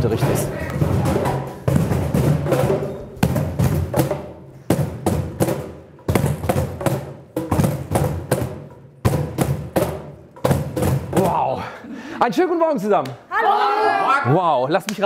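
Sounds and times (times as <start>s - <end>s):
cajon drumming by hand: 0.0s - 11.5s.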